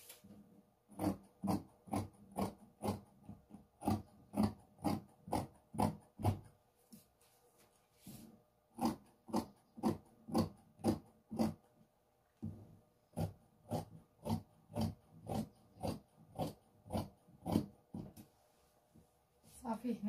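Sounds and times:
scissors snipping fabric: 0.9s - 6.5s, 8.8s - 11.6s, 13.1s - 18.2s.

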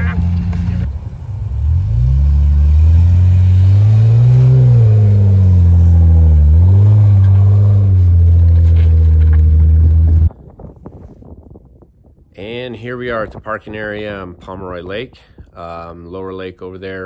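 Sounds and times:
engine revving: 0.0s - 0.9s, 1.5s - 10.3s.

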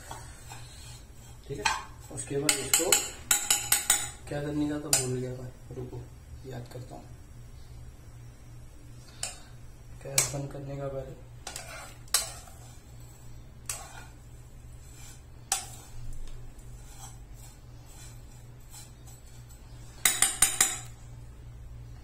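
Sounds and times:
metal spoon clinking on frying pan: 2.5s - 4.2s, 20.0s - 20.9s.

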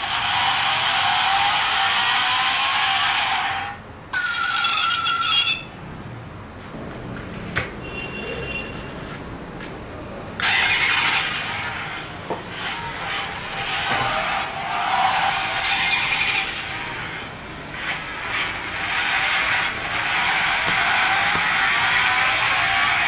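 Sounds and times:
toy car whirring: 0.0s - 3.8s, 10.4s - 23.0s
electronic engine sound: 10.4s - 23.0s.

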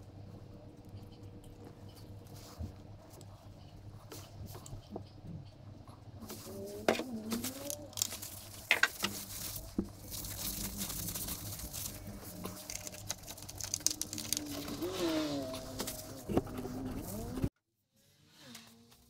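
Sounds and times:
paper towel rubbing and crinkling: 6.2s - 17.5s.

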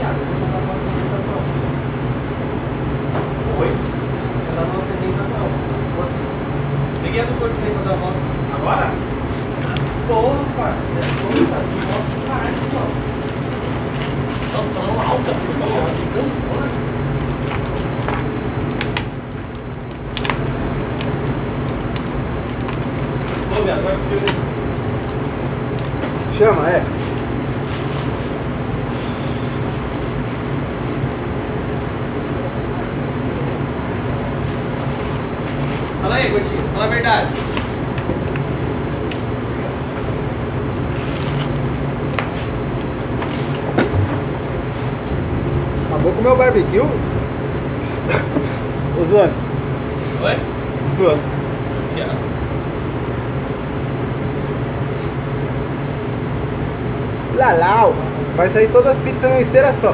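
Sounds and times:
kitchen equipment humming: 7.2s - 49.5s.

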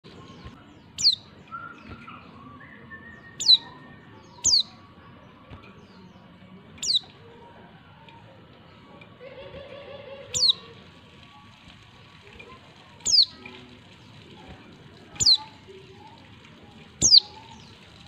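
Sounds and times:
bird chirping high and falling: 0.2s - 4.8s, 6.8s - 7.1s, 10.3s - 10.7s, 13.0s - 13.4s, 15.2s - 15.5s, 17.0s - 17.8s.

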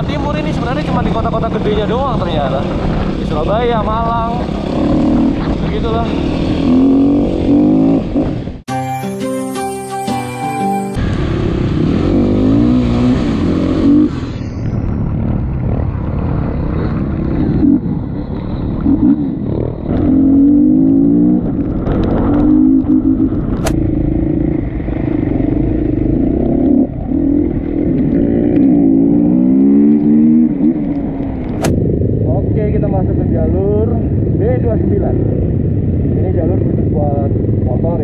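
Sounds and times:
dirt bike engine revving: 0.0s - 8.6s, 11.0s - 31.8s
sharp click: 23.5s - 23.8s.

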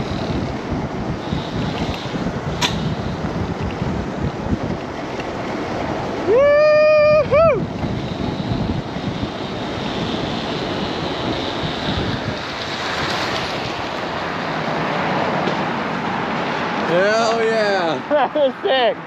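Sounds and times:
wind rushing over microphone: 0.0s - 17.8s
person whooping: 6.2s - 7.7s.

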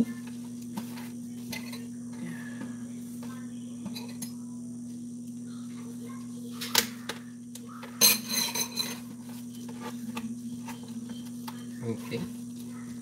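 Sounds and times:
steady low hum: 0.0s - 13.0s
kitchenware clinking and clattering: 8.0s - 9.1s.

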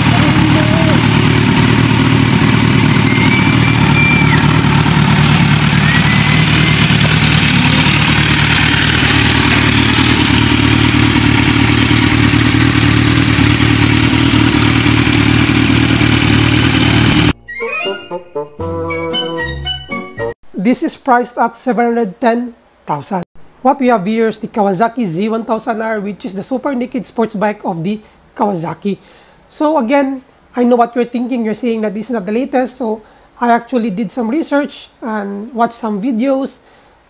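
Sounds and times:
motorcycle engine idling: 0.0s - 17.4s
short music sting: 17.4s - 20.2s.

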